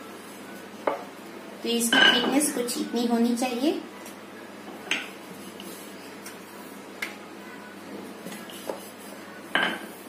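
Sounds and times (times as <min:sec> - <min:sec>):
rolling pin rolling dough: 0:07.9 - 0:10.0.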